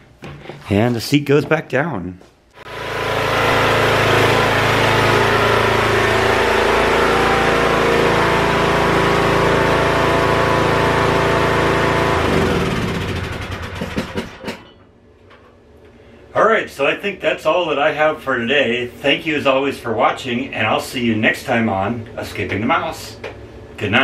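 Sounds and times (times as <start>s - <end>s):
riding lawn mower engine running: 2.6s - 14.4s.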